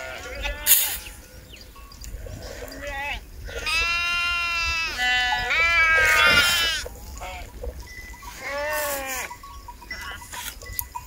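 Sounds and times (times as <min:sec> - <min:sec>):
sheep bleating: 0:00.0 - 0:00.8, 0:02.3 - 0:07.6, 0:08.2 - 0:10.4.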